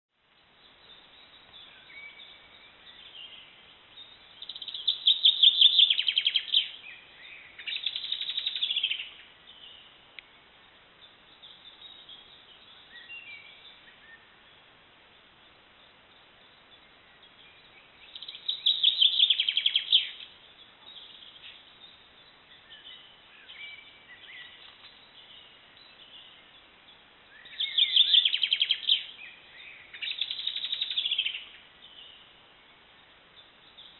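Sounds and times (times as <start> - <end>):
faint bird chirps and calls: 0.2 - 33.9
songbird singing trilled phrases: 0.4 - 33.9.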